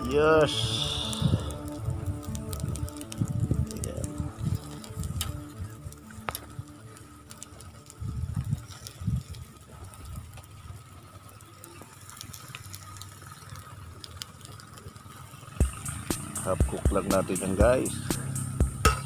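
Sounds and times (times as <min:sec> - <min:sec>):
low rumbles: 0:00.0 - 0:09.3, 0:15.6 - 0:19.0
squid sizzling on a grill: 0:00.0 - 0:19.0.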